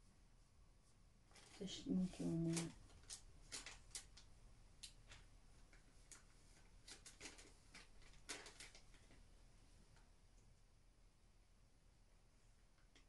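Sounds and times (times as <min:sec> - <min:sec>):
packaging clicks and rustles: 0:02.4 - 0:09.3.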